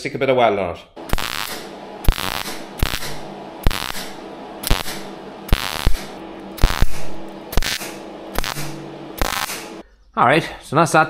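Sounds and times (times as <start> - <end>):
faint steady hum: 1.0 - 9.8
welding crackle and hiss: 1.0 - 9.8.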